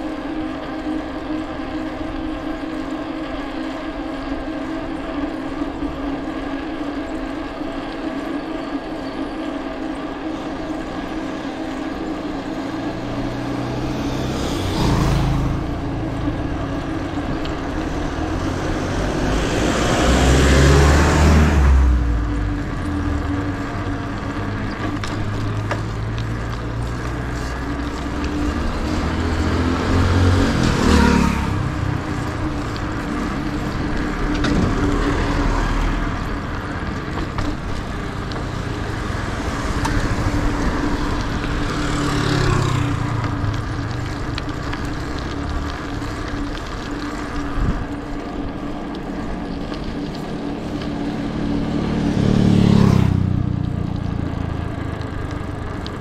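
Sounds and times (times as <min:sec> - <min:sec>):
engine hum: 0:00.0 - 0:56.0
vehicles passing: 0:00.0 - 0:56.0.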